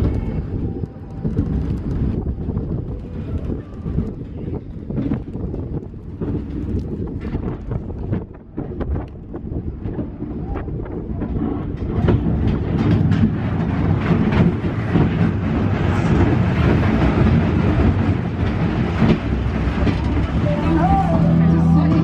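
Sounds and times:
roller coaster wheels rumbling: 0:00.0 - 0:22.0
wind rushing over microphone: 0:00.0 - 0:22.0.

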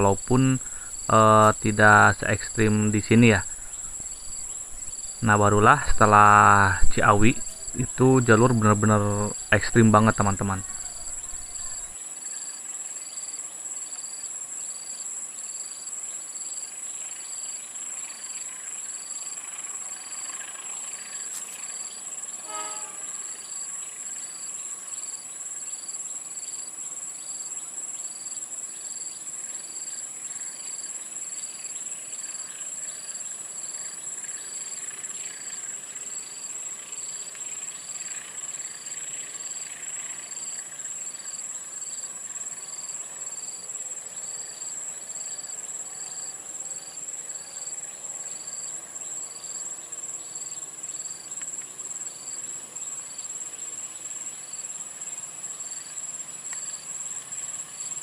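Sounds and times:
high-pitched insect drone: 0:00.0 - 0:58.0
insect chirping: 0:00.0 - 0:58.0
train horn toot: 0:22.4 - 0:23.4.

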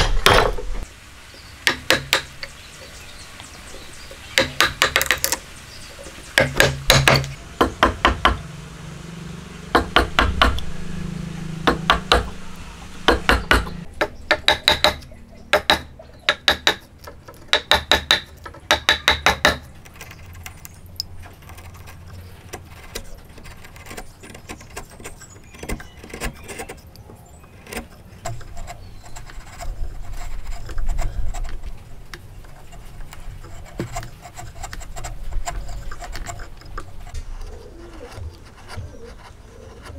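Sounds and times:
chisel struck chopping wood: 0:01.7 - 0:02.3, 0:04.4 - 0:05.4, 0:06.4 - 0:08.4, 0:09.7 - 0:10.7, 0:11.6 - 0:12.3, 0:13.1 - 0:16.8, 0:17.5 - 0:19.6
chisel scraping wood: 0:09.5 - 0:39.9.

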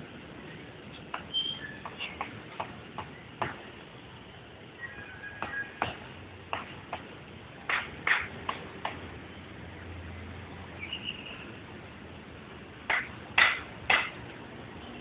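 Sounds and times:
sharp knocks: 0:07.7 - 0:09.0, 0:12.9 - 0:14.2.

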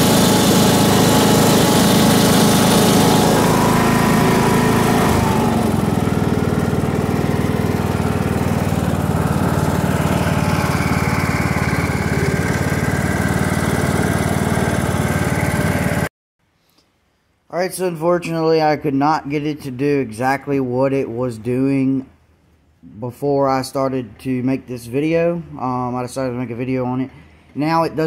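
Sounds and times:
lawn tractor engine running: 0:00.0 - 0:16.1.

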